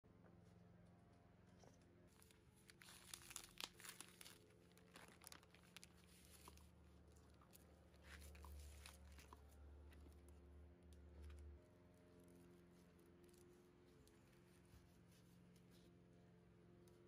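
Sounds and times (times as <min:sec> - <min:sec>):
plastic package crinkling and tearing: 0:02.1 - 0:09.4.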